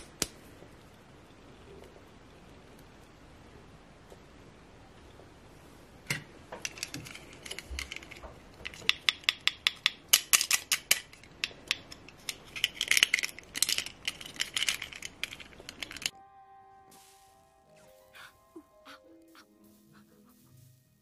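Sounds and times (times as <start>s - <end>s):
plastic toy clicks and taps: 6.6s - 16.1s.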